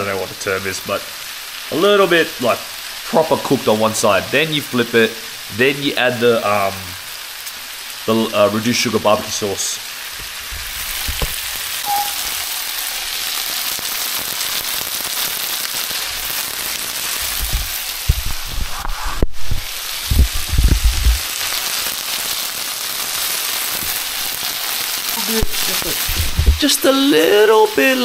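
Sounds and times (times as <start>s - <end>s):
chicken sizzling in a pan: 0.0s - 28.0s
low bumps: 17.4s - 21.2s, 26.1s - 26.6s.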